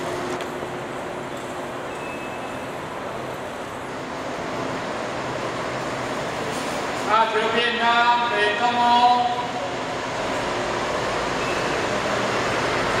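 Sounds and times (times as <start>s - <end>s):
station hum and hiss: 0.0s - 13.0s.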